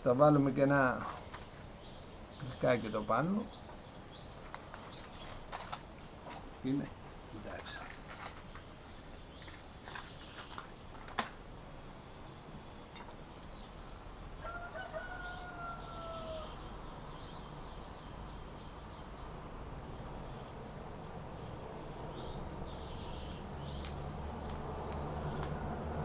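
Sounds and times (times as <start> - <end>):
small birds chirping: 0.0 - 26.0
rooster crowing: 14.4 - 16.6.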